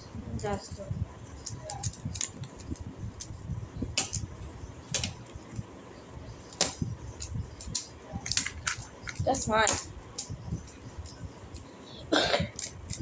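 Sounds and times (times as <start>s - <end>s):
speed cube clicking: 1.4s - 3.4s, 12.5s - 13.0s.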